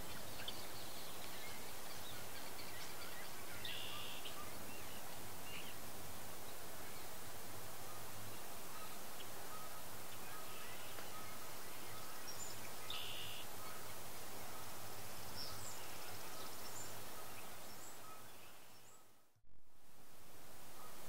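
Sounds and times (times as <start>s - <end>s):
faint bird chirps: 0.0s - 5.8s, 7.9s - 19.3s
outdoor background noise: 0.0s - 21.0s.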